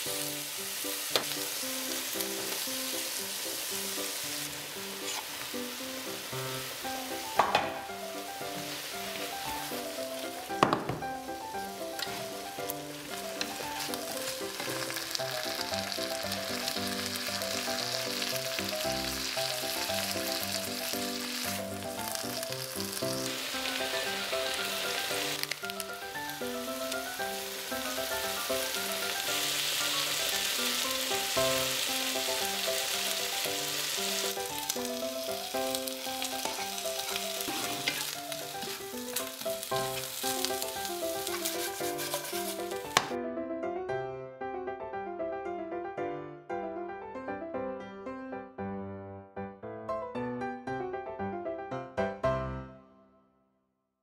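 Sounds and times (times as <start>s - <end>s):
meat and tofu sizzling in pan: 0.0s - 43.1s
simple melody background music: 0.0s - 53.6s
spatula turning food: 1.1s - 5.8s, 11.7s - 15.7s, 34.1s - 43.1s.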